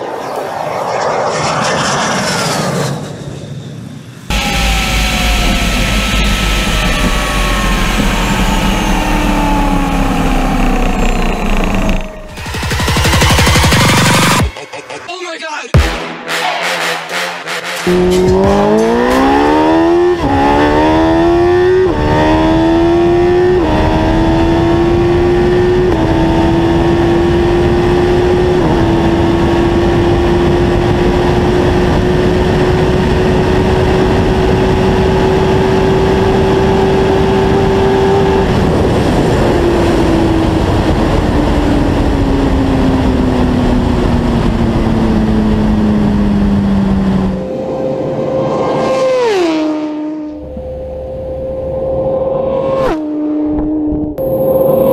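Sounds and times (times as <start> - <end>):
motorcycle engine at full throttle: 4.3 - 14.5, 17.9 - 54.9
wind noise: 18.0 - 47.7.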